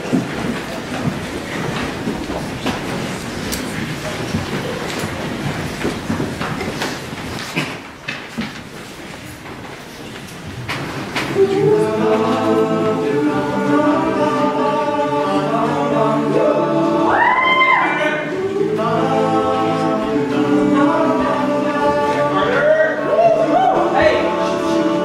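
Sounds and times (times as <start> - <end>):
male a cappella group singing: 11.3 - 25.0.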